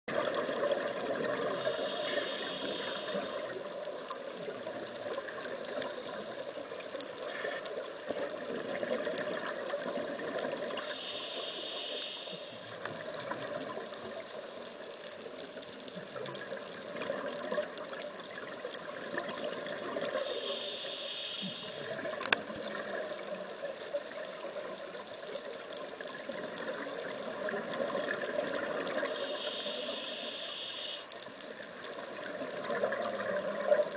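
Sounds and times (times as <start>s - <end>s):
underwater noise: 0.1s - 33.9s
diver breathing through regulator: 1.4s - 3.5s, 10.8s - 12.8s, 20.2s - 21.9s, 29.0s - 31.1s.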